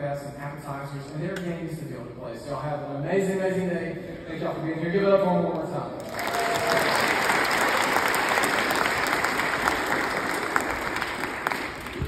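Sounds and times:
people applauding: 6.0 - 12.0.

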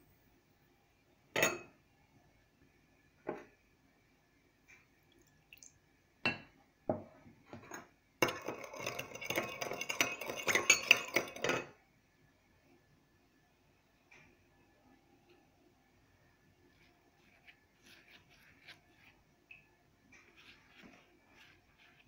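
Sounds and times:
spoon clinking on porcelain bowl: 7.6 - 11.8
spoon stirring rattling in bowl: 8.2 - 11.8.

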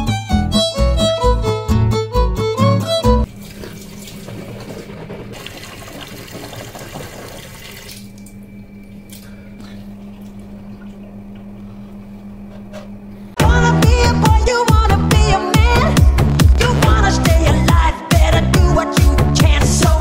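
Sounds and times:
steady low hum: 3.2 - 17.6
tap water running into sink: 3.3 - 8.2.

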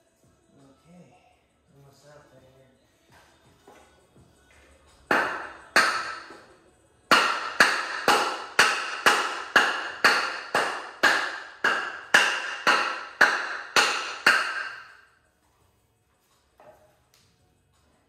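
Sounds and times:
hammer blows on wood: 5.1 - 6.5, 7.1 - 15.1.

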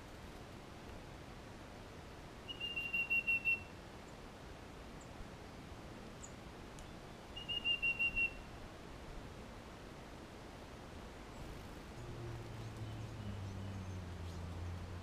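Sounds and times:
songbird whistling: 2.5 - 3.7, 7.4 - 8.5.

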